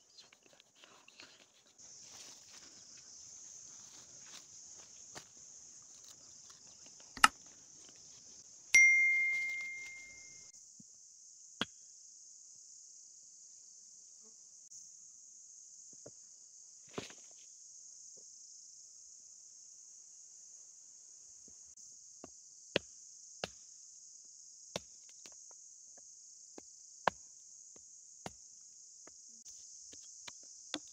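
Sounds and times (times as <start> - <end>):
metallic bell-like ding: 8.8 - 10.5.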